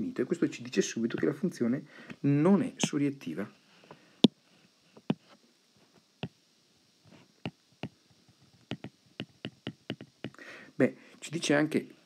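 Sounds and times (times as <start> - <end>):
stylus tapping on tablet screen: 7.4 - 10.4.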